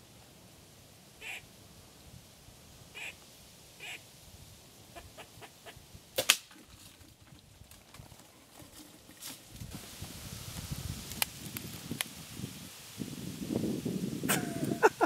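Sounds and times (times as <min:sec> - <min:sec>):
squirrel barking: 0:01.2 - 0:01.5, 0:03.0 - 0:03.2, 0:03.8 - 0:04.0
sharp double crack: 0:06.2 - 0:06.5.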